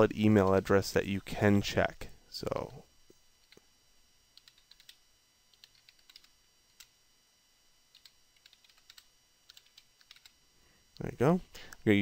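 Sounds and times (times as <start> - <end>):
faint keyboard typing: 4.3 - 7.0, 7.9 - 10.4.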